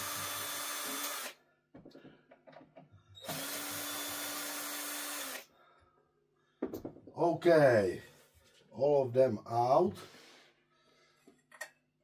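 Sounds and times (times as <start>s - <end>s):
power screwdriver running: 0.0s - 1.4s, 3.2s - 5.5s.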